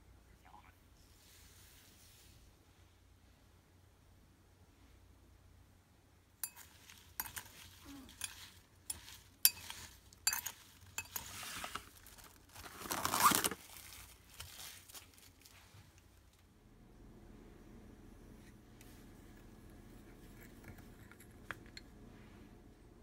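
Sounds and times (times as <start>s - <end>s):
spoon scraping a glass bowl: 6.4s - 12.2s
cling wrap crinkling: 6.6s - 16.4s.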